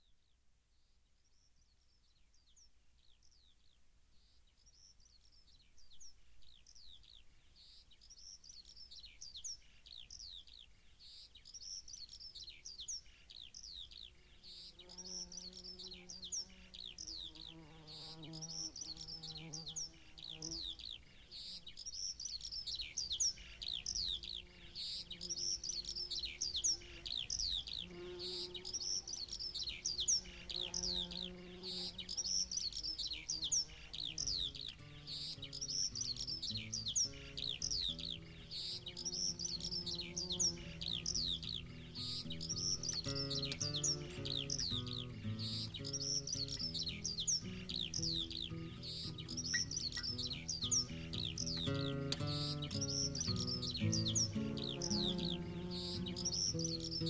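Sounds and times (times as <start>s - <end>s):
birds chirping: 1.3s - 57.0s
soft instrumental music: 42.0s - 57.0s.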